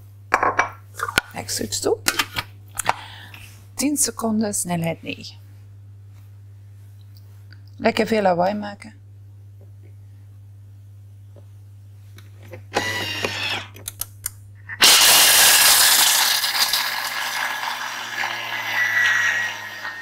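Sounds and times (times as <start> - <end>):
blender grinding almonds: 12.8 - 13.7, 14.8 - 20.0.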